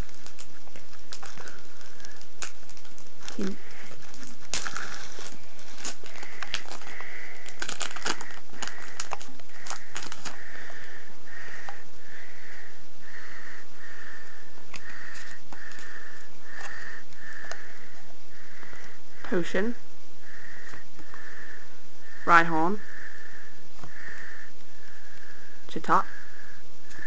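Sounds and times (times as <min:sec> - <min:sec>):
foil wrapper crinkling and tearing: 0:00.0 - 0:12.2, 0:14.1 - 0:19.0
child breathing heavily: 0:03.2 - 0:19.2, 0:20.2 - 0:22.2, 0:22.8 - 0:27.0.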